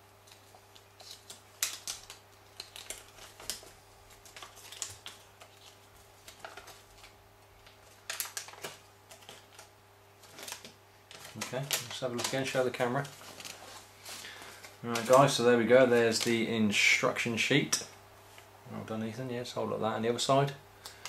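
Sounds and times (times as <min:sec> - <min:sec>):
faint steady hum: 0:00.0 - 0:21.0
paper booklet rustling: 0:00.2 - 0:16.7.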